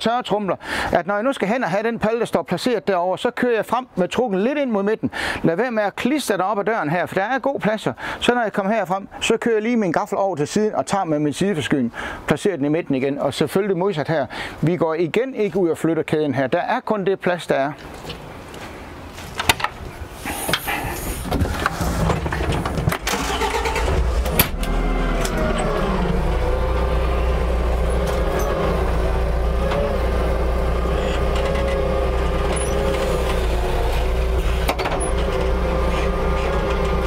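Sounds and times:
knocks and clunks: 20.5 - 26.6, 27.9 - 30.1, 30.8 - 37.0
forklift engine starting and idling: 20.6 - 37.0.

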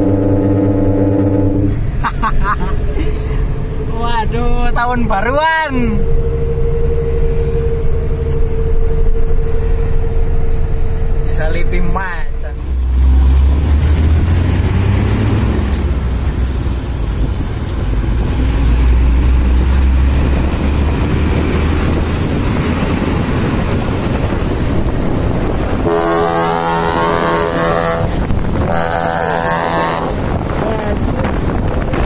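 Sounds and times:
multi-note air horn blast: 0.0 - 1.9, 25.8 - 30.2
dump truck engine rumble: 0.0 - 32.0.

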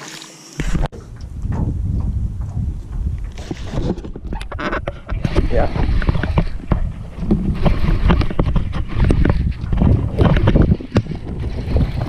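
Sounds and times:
wind rumbling on microphone: 0.6 - 12.0.

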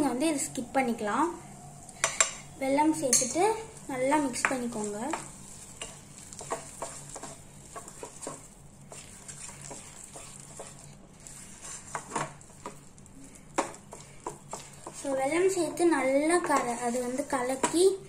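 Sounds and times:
wooden spatula scraping pan: 3.6 - 12.9, 13.6 - 17.9
spatula knocking pan: 4.3 - 10.8, 13.6 - 17.9.

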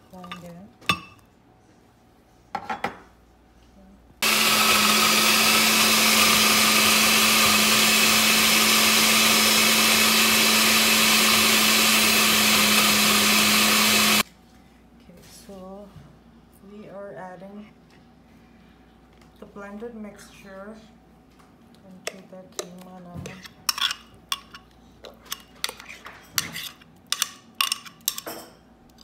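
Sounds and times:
blender motor grinding: 4.2 - 14.2.

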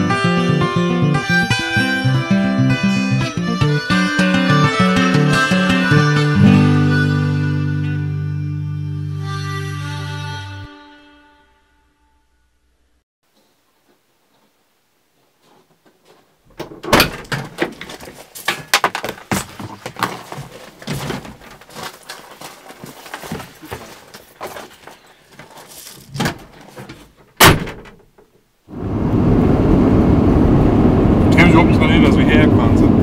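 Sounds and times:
vehicle door slamming: 16.5 - 17.8, 27.3 - 28.1
loud vehicle driving: 28.7 - 33.0.

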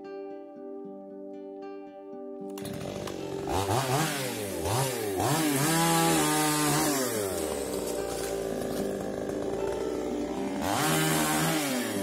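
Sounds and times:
chainsaw engine revving: 2.6 - 12.0.

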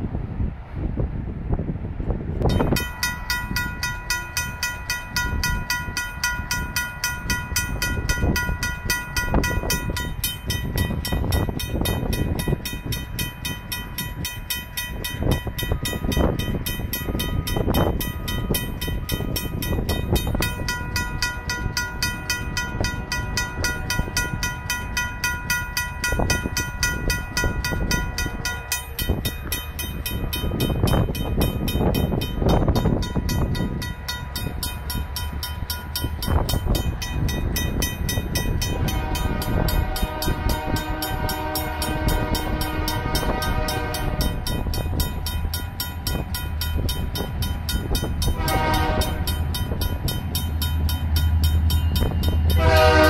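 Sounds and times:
gusty low rumble: 0.0 - 4.0
railroad crossing bell ringing: 2.4 - 53.0
distant train horn: 38.4 - 44.7, 48.1 - 49.7, 51.9 - 53.0.

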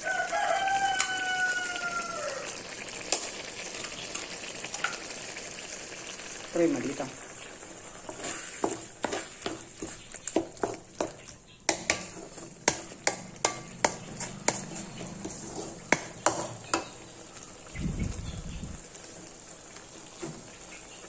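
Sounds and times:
frying sizzle: 0.0 - 21.0
wooden spatula scraping a pan: 7.6 - 17.0.

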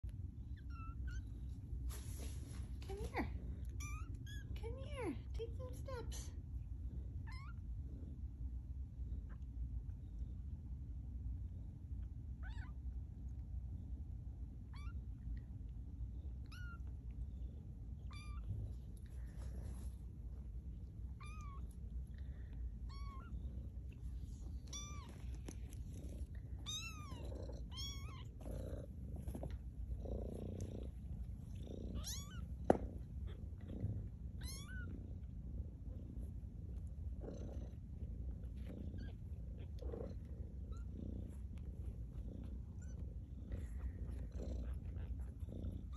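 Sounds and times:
low steady rumble: 0.0 - 45.9
kittens mewing: 24.6 - 28.9, 31.8 - 35.0.

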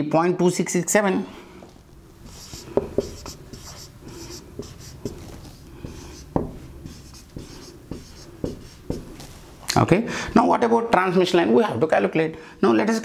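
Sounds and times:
marker writing on whiteboard: 2.2 - 9.3.

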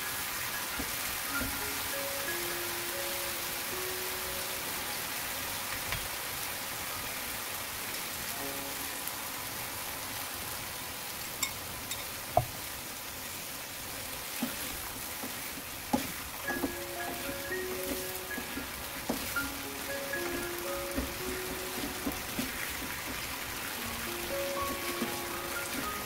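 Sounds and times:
mushrooms sizzling in oil: 0.0 - 26.0
utensil knocking against pan: 15.2 - 23.3.

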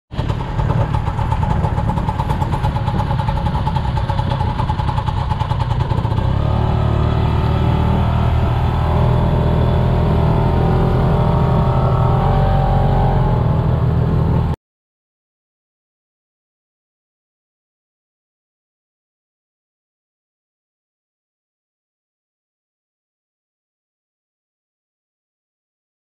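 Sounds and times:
motorcycle engine droning: 0.1 - 14.6.

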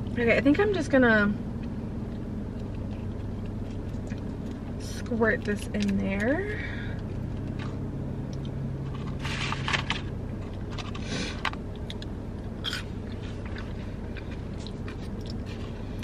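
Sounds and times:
car cabin hum: 0.0 - 16.0
paper packaging rustling: 8.9 - 11.1.

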